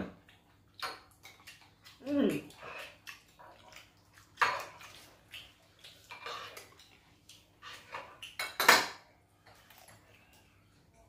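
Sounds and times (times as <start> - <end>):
spoons clinking against bowls: 7.7 - 9.7.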